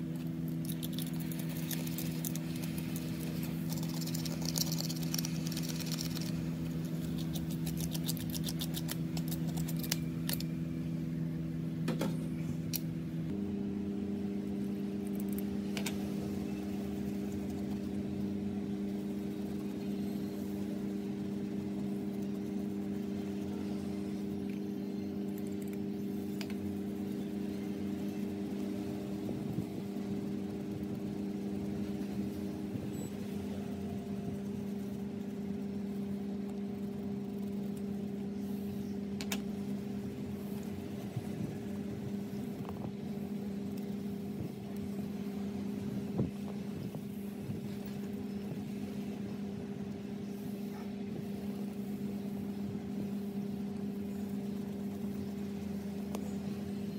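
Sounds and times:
electric motor hum: 0.0 - 56.9.

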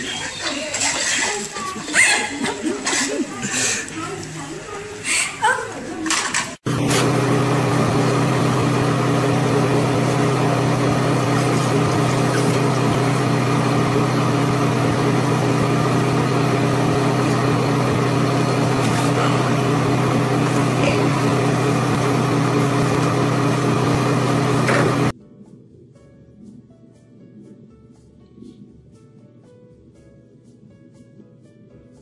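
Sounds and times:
loud electrical hum: 6.1 - 25.2.

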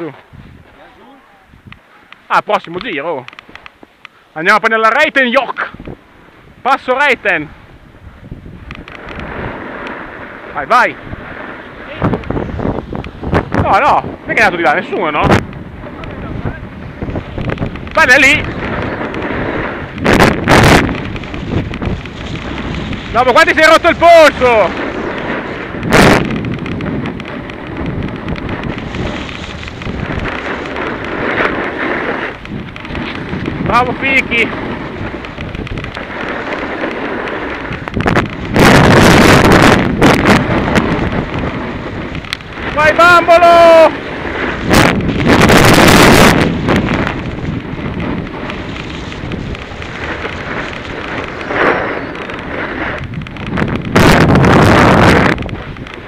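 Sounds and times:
wind buffeting microphone: 0.0 - 56.0
skis hissing over snow: 9.0 - 15.2, 18.0 - 20.0, 20.6 - 25.8, 26.9 - 39.6, 40.3 - 53.3.

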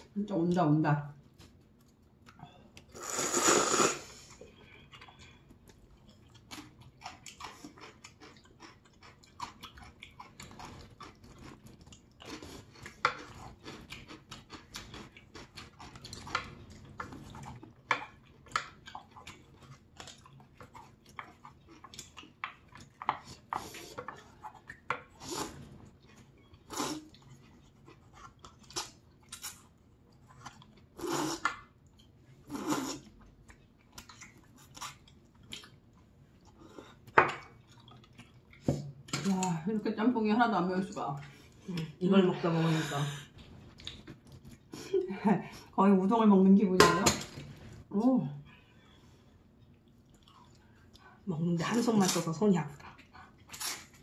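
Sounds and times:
wet chewing: 1.2 - 39.6, 43.2 - 45.0, 48.8 - 54.0
noodles slurping: 2.9 - 4.3.

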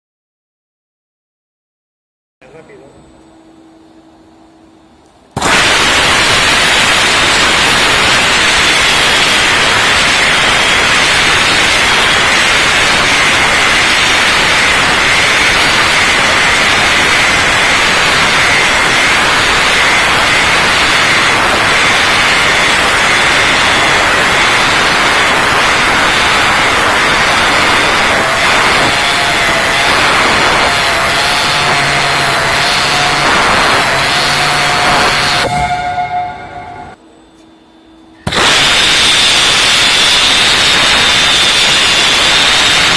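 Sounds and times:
disc sander hissing: 5.4 - 35.5, 38.3 - 42.9.

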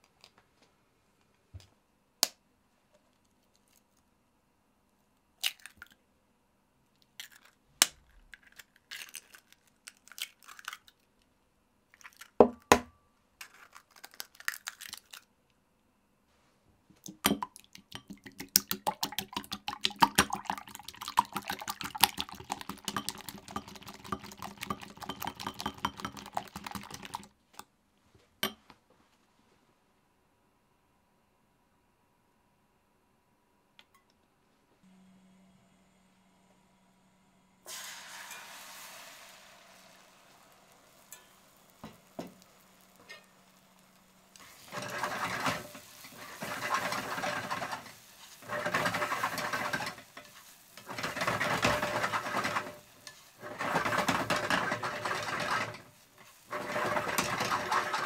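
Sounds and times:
eggs cracking: 5.4 - 6.0, 7.1 - 11.1, 13.4 - 15.3, 17.0 - 27.3
whisk beating eggs in bowl: 17.2 - 27.3, 44.3 - 58.0.

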